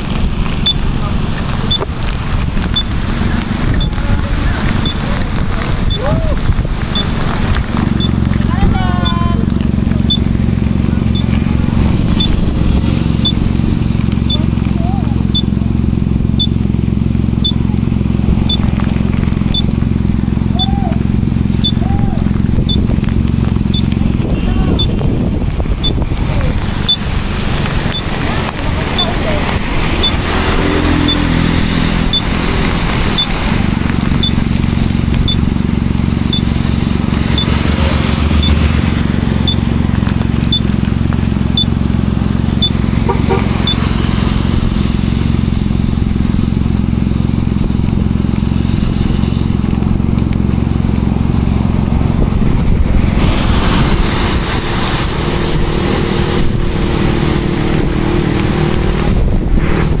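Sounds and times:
motorbike engine idling: 7.9 - 24.9
short high beep: 21.6 - 21.8.

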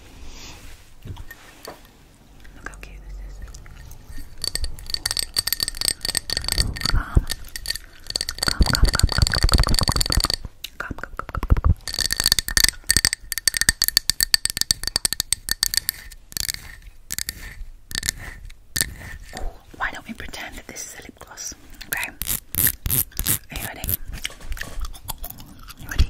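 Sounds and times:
glass jar rubbed with rumble: 1.2 - 10.4, 11.8 - 20.0, 21.9 - 24.0
fingernails tapping on glass jar: 4.1 - 10.5, 11.2 - 18.2.

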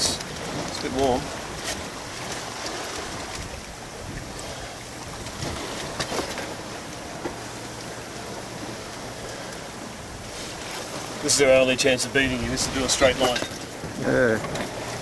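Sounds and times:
wind and water rushing: 0.0 - 15.0.

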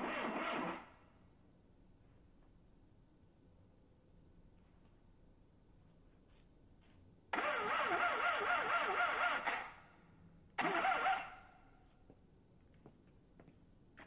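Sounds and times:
car engine cranking by starter: 0.0 - 0.9, 7.3 - 9.9, 10.6 - 11.5.

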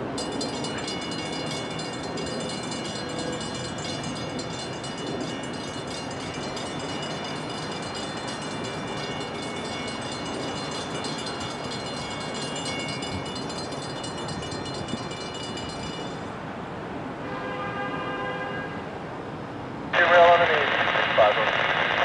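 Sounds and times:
high metallic ringing tones: 0.0 - 16.6
train rumbling: 0.0 - 17.0.

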